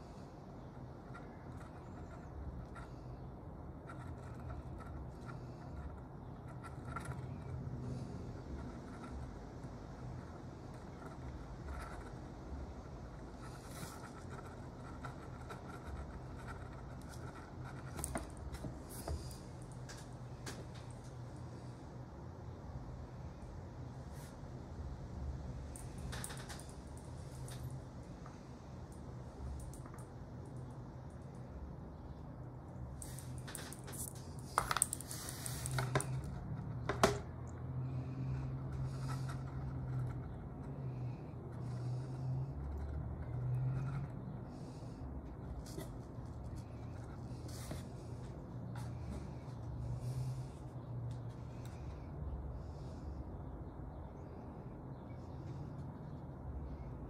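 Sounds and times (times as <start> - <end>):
low background hum: 0.0 - 57.0
watch handling: 33.0 - 36.4.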